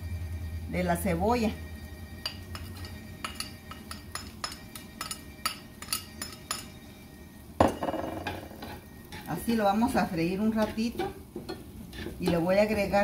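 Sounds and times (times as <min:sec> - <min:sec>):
utensils clinking against frying pan: 0:02.2 - 0:06.8.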